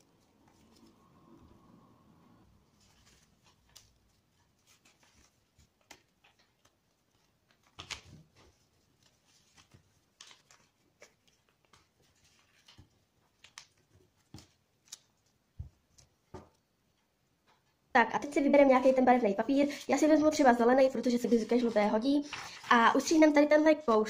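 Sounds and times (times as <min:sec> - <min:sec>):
paper rustling and crinkling: 0:02.6 - 0:16.1, 0:19.7 - 0:24.0.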